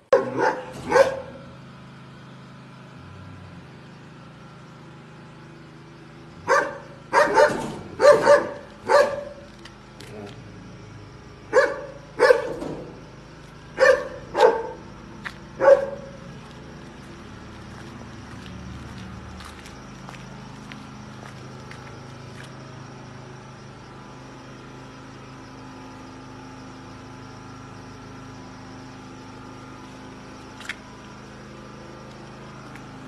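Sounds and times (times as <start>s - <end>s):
dog barking: 0.1s - 1.4s, 6.5s - 9.5s, 11.5s - 12.6s, 13.8s - 14.8s, 15.6s - 16.2s.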